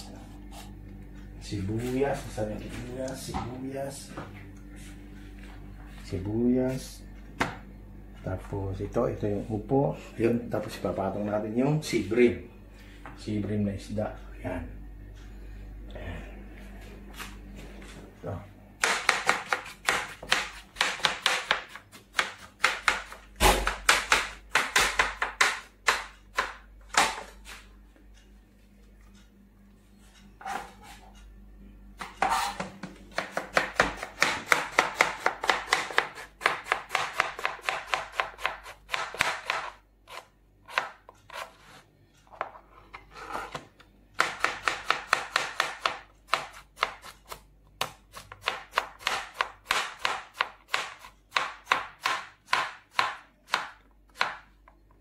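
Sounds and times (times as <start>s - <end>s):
knife chopping on plastic board: 18.8s - 27.3s, 32.0s - 42.6s, 43.5s - 54.5s.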